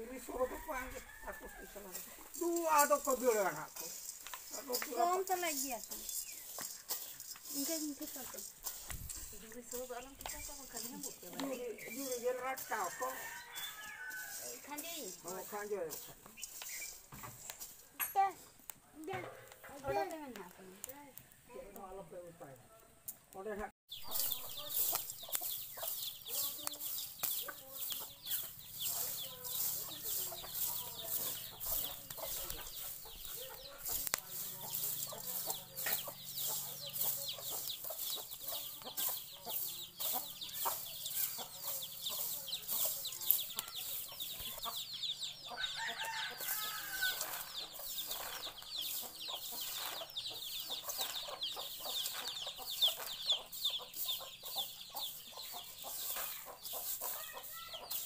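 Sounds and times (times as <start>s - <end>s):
sticks stirring sand in wok: 0.0s - 22.1s, 23.9s - 58.0s
hens clucking: 24.0s - 58.0s.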